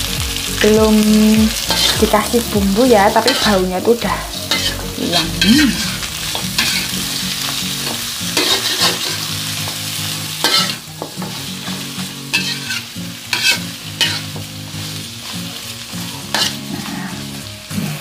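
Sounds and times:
vegetables sizzling in a wok: 0.0 - 18.0
metal spatula scraping a wok: 1.6 - 2.0, 3.2 - 3.6, 4.3 - 9.3, 10.3 - 14.3, 16.0 - 17.3.

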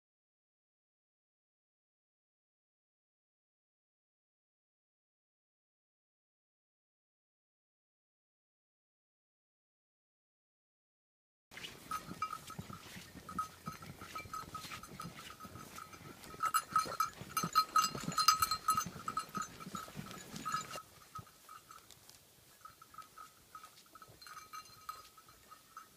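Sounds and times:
hooves crunching in snow: 11.5 - 25.9
small bell jingling: 11.6 - 25.9.

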